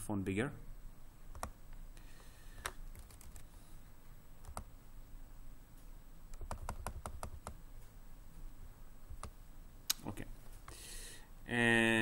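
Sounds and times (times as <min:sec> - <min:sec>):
computer keyboard typing: 0:01.3 - 0:01.6, 0:02.6 - 0:03.5, 0:04.4 - 0:04.7, 0:06.3 - 0:07.6.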